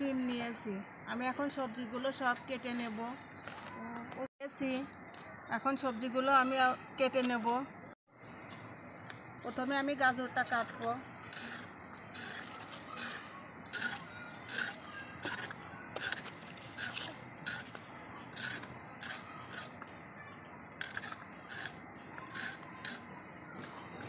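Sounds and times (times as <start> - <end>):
blade cutting carrot: 10.4 - 19.8, 20.8 - 23.1.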